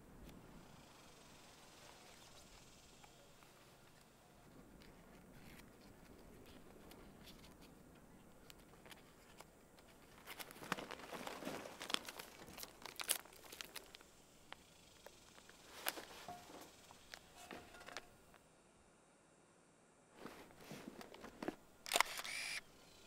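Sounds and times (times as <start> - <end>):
foil wrapper crinkling: 8.8 - 14.1.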